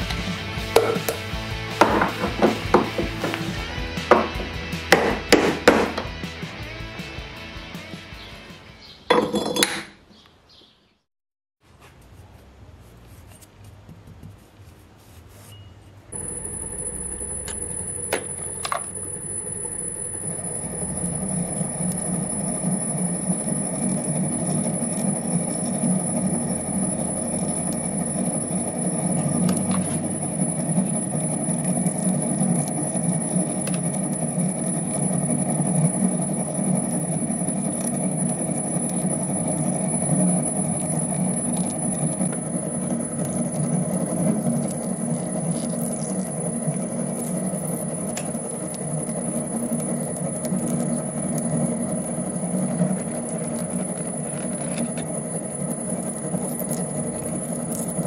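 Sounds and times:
metal lathe whining: 0:16.2 - 0:58.0.

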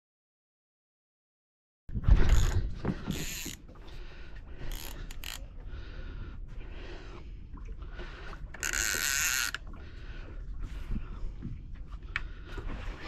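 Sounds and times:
fishing reel clicking: 0:02.3 - 0:03.6, 0:04.7 - 0:05.4, 0:08.5 - 0:09.6.

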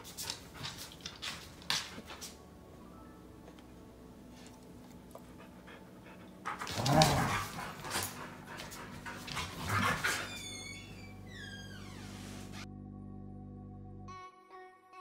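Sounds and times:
dogs panting: 0:00.0 - 0:02.4, 0:04.4 - 0:10.4.

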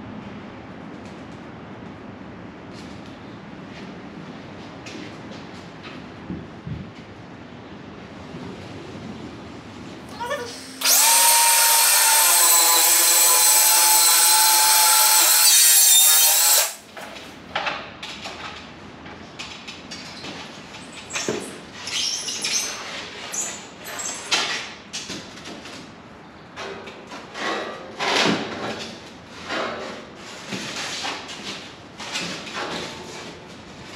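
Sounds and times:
circular saw cutting foam board: 0:10.1 - 0:16.8.

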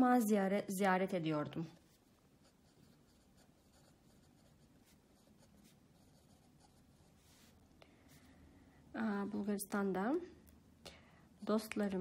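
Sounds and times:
pen scratching on paper: 0:02.4 - 0:07.6.

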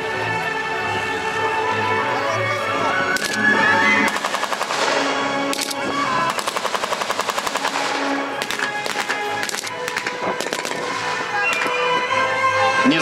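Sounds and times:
background music: 0:00.0 - 0:13.0
single gunshots: 0:04.1 - 0:05.7, 0:06.3 - 0:11.8
automatic gunfire bursts: 0:04.1 - 0:11.8.

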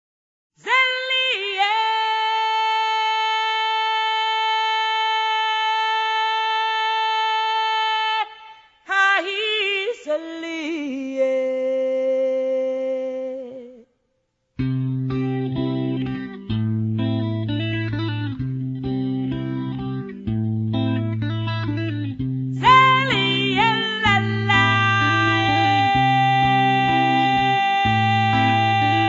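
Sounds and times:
person singing unaccompanied: 0:00.6 - 0:13.9, 0:22.5 - 0:29.0.

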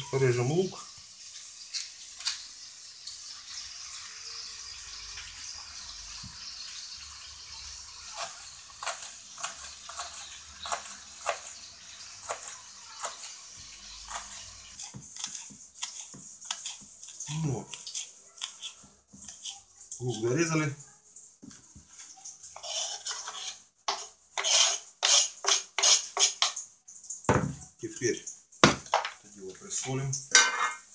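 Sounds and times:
knife chopping on wooden board: 0:08.2 - 0:11.5, 0:27.3 - 0:27.6, 0:28.6 - 0:29.1.

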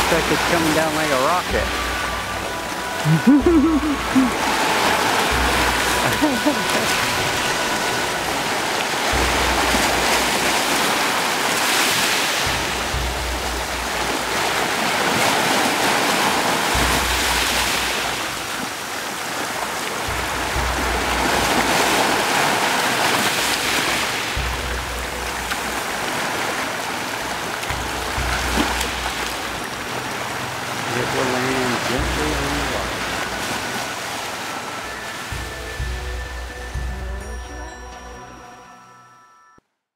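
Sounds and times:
ocean surf washing ashore: 0:00.0 - 0:37.3.

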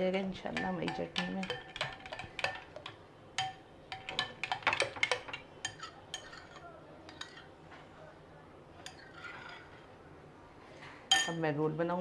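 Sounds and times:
metal spoon clinking against glass bowl: 0:00.5 - 0:07.5, 0:11.1 - 0:11.4.

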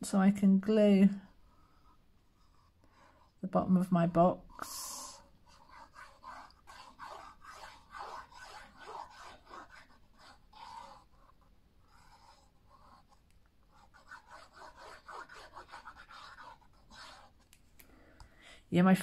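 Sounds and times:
glue tip scratching on card: 0:05.2 - 0:17.6.

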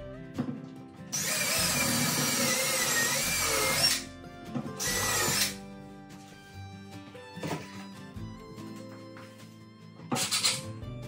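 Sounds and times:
background music: 0:00.0 - 0:11.0
cordless drill whining: 0:01.2 - 0:04.1, 0:04.8 - 0:05.6.

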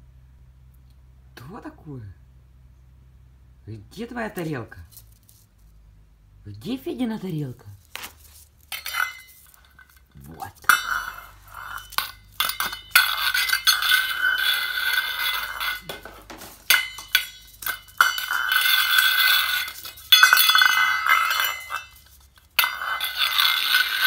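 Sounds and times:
metal bowl scraping on tile: 0:07.9 - 0:24.0
metal bowl clanking: 0:08.7 - 0:24.0.

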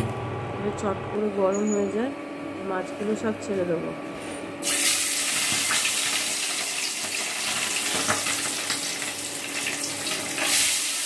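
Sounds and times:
fish sizzling in hot oil: 0:04.6 - 0:11.0.

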